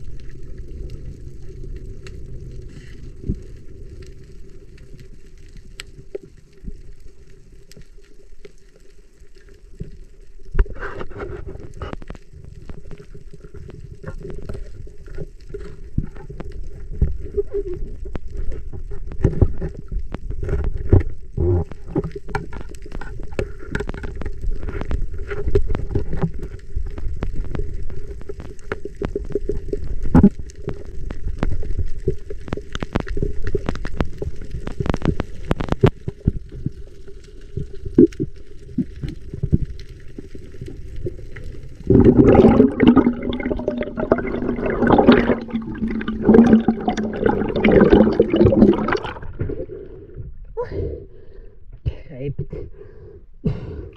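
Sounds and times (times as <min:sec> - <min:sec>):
sharp clicks and knocks underwater: 0:00.0 - 0:50.4
underwater low hum: 0:00.0 - 0:51.8
gurgling bubbling water: 0:10.5 - 0:50.4.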